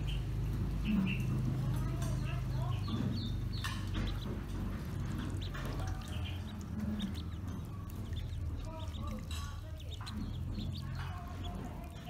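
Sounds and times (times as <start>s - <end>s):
ducklings peeping: 0.0s - 12.0s
water splashing: 0.0s - 12.0s.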